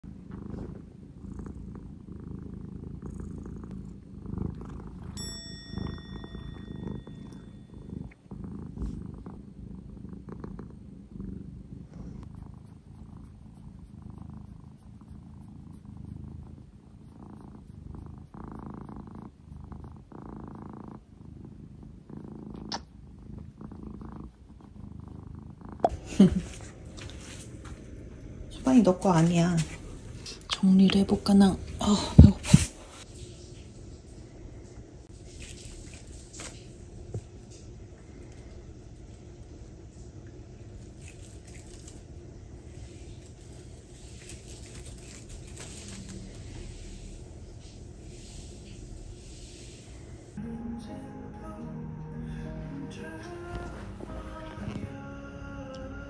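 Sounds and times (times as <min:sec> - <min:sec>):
cat purring: 0:00.0 - 0:33.2, 0:34.6 - 0:50.4, 0:52.4 - 0:55.9
ringing tone: 0:05.1 - 0:08.1.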